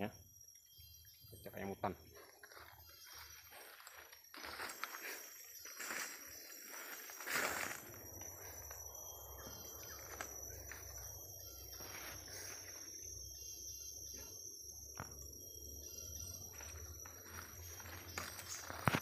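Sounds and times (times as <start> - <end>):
high-pitched insect chorus: 0.0 - 19.0
footsteps in leaf litter: 3.6 - 7.9.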